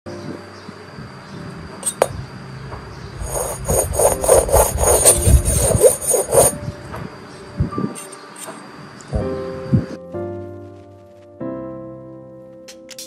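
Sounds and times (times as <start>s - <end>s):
knife scraping on ceramic: 3.2s - 6.6s.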